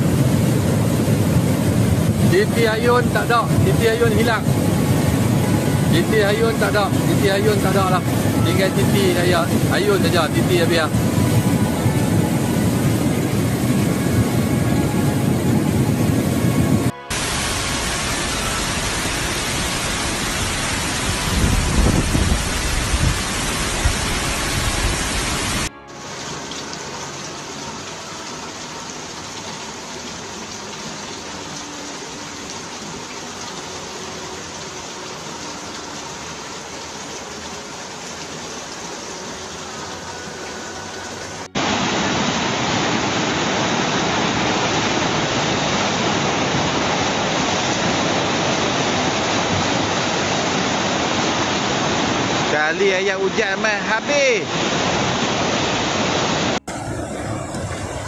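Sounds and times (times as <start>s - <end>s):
low rumbling: 0.0s - 25.8s, 56.6s - 58.0s
flood water rushing: 0.0s - 58.0s.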